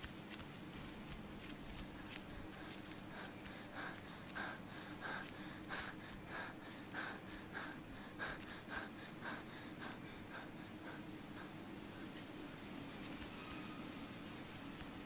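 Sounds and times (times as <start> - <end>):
man breathing heavily: 0.3 - 12.2.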